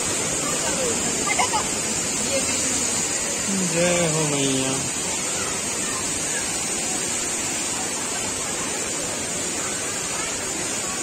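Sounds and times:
waterfall rushing: 0.0s - 11.0s.

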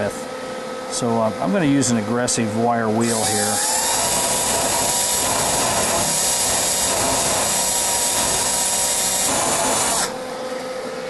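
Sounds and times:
power drill motor whine: 3.0s - 10.2s.

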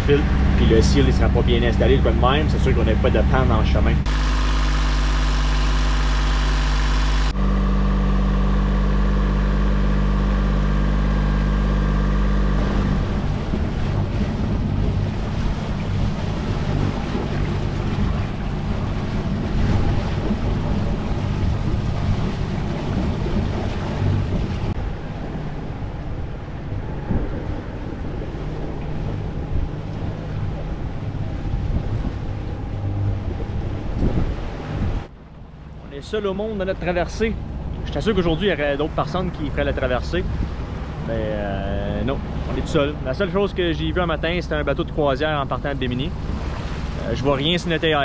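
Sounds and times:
boat engine running: 0.0s - 48.0s
waves rushing past hull: 0.0s - 48.0s
wind on microphone: 12.0s - 35.1s, 40.2s - 41.2s.

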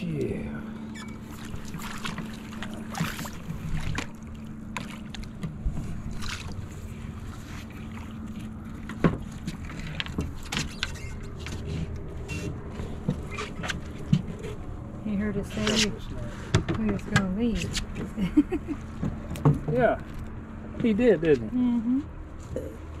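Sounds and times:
low hum: 0.0s - 23.0s
water splashes: 1.0s - 14.4s.

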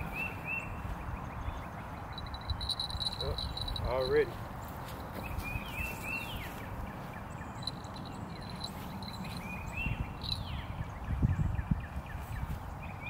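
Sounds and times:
birds chirping: 0.0s - 13.0s
steady low rumble: 2.0s - 5.4s.

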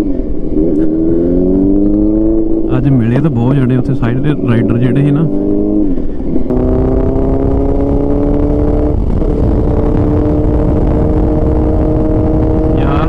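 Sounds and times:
low rumble: 6.4s - 13.0s
motorcycle engine running: 6.5s - 13.0s.

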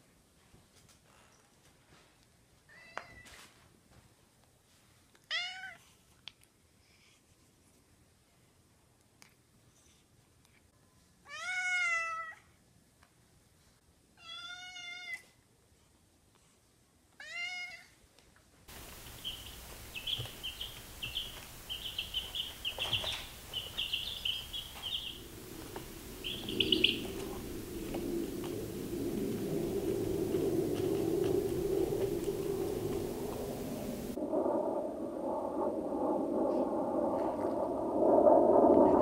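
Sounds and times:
baby chicks peeping: 18.9s - 25.2s, 26.2s - 27.2s.

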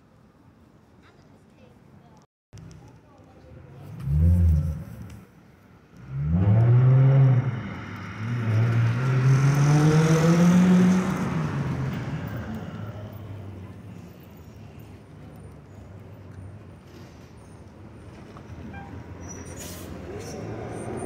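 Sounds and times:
road noise: 0.0s - 21.0s
vehicle engine accelerating past: 3.8s - 5.2s, 6.0s - 13.6s.

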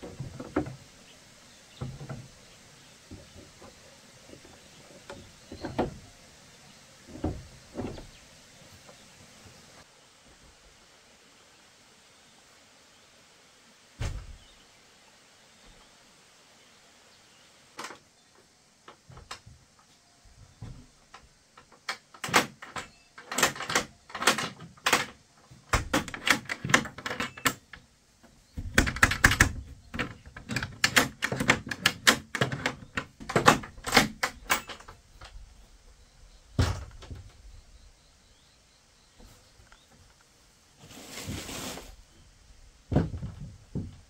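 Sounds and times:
sharp knocks and clicks: 20.6s - 27.8s, 28.6s - 35.4s.

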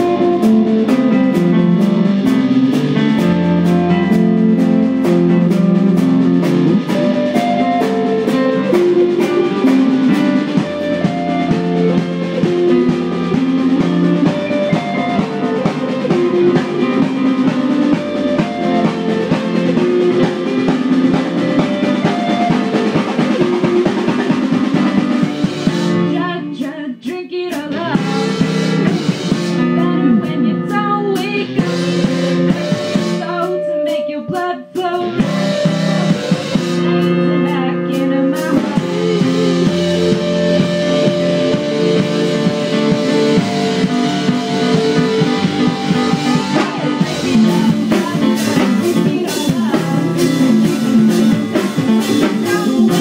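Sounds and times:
keyboard: 0.0s - 26.8s, 27.5s - 53.0s
drums: 0.0s - 53.0s
electric guitars: 0.0s - 53.0s.

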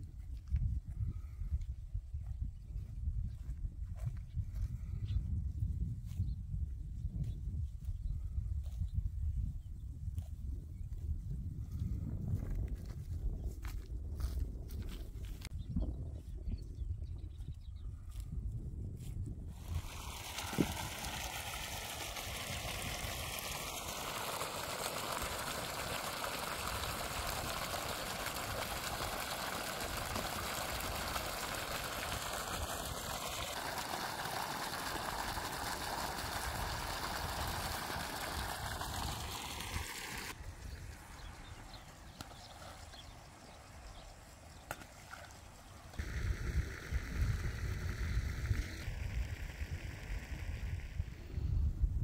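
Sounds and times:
water pouring into pond: 19.5s - 51.6s
low rumbling: 46.0s - 52.0s.

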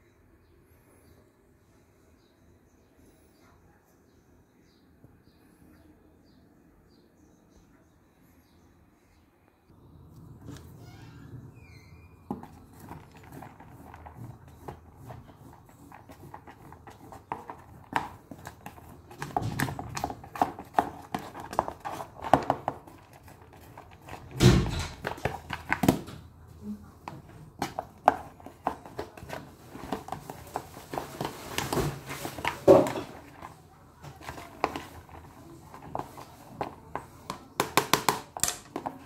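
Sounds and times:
containers and utensils clicking: 27.0s - 39.0s.

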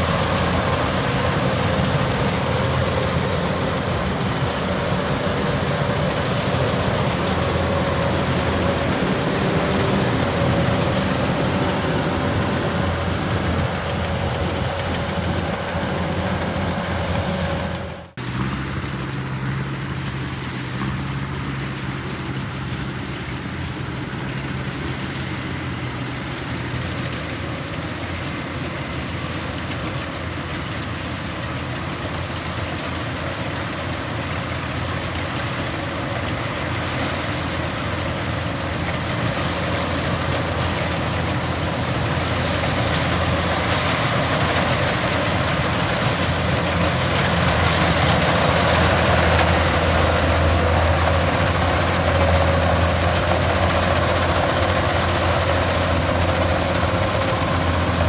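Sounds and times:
combine harvester running: 0.0s - 58.0s.

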